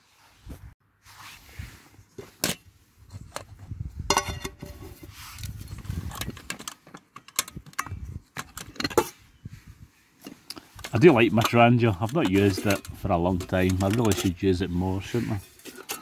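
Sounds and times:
metal pans clinking and clanking: 0:04.1 - 0:04.8, 0:06.2 - 0:09.2, 0:10.8 - 0:14.5, 0:15.3 - 0:16.0.

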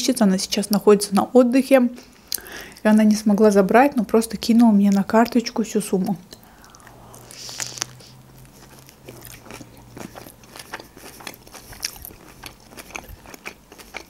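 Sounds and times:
moist crunchy chewing: 0:06.0 - 0:14.0.

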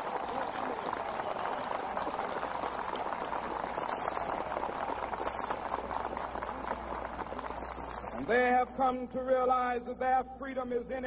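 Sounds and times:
large crowd applauding: 0:00.0 - 0:08.3.

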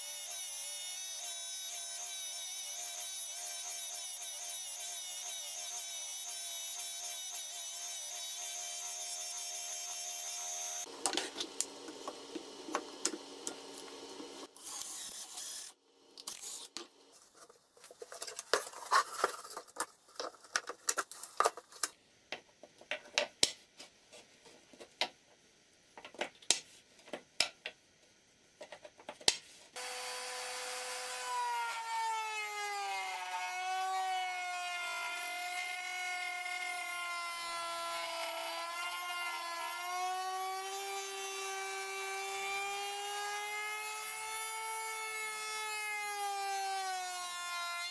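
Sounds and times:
power tool motor whine: 0:29.8 - 0:34.2.

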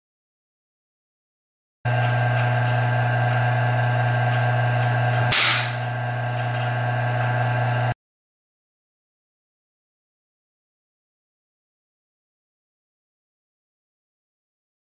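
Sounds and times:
electrical hum and buzz: 0:01.9 - 0:08.0
high-voltage discharge crack: 0:05.3 - 0:05.8.

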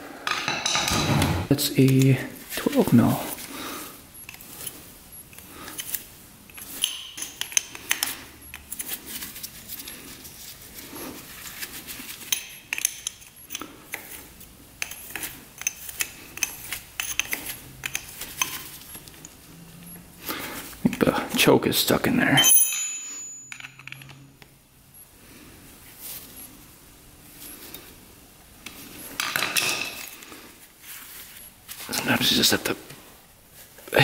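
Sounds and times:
metal hand tools clinking: 0:22.4 - 0:24.3.

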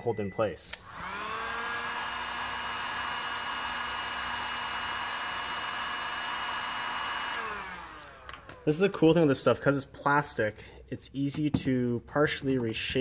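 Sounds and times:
heat gun fan motor whining: 0:00.7 - 0:09.1.

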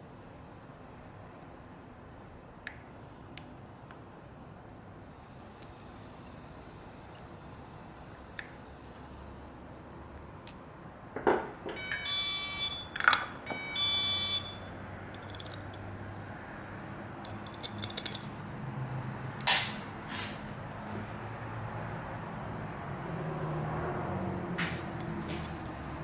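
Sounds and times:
high beeps: 0:11.8 - 0:14.7.

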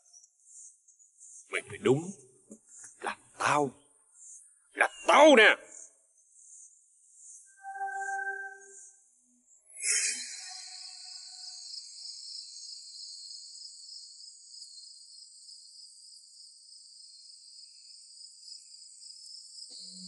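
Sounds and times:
insects chorus: 0:10.4 - 0:20.0.

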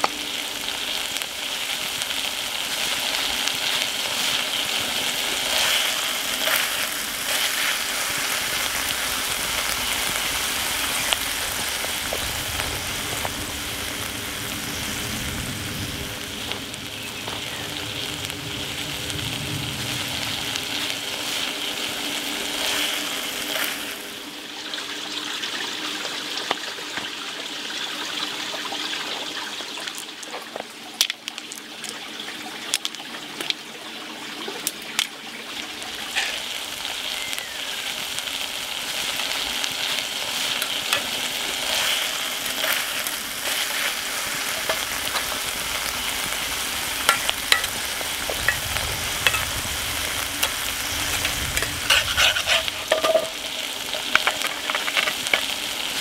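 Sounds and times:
food sizzling in a skillet: 0:00.0 - 0:31.4, 0:33.8 - 0:56.0
utensil scraping and clicking on pan: 0:50.4 - 0:55.5.

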